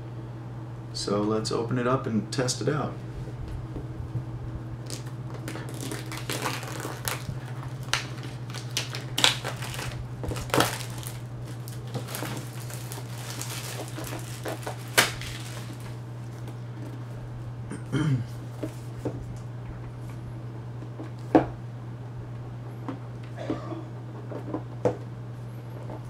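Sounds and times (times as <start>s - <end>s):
steady low hum: 0.0s - 26.0s
plastic wrap crinkling and tearing: 4.8s - 16.4s.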